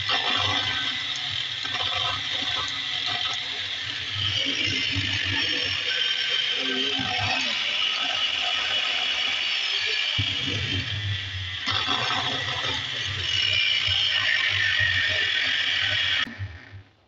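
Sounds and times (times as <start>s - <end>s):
angle grinder running: 0.0s - 16.4s
low hum: 10.2s - 17.0s.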